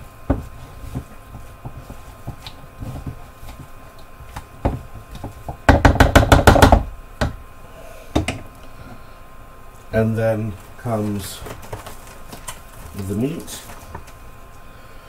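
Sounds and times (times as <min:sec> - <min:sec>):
spatula scraping plastic bowl: 0:00.0 - 0:05.4.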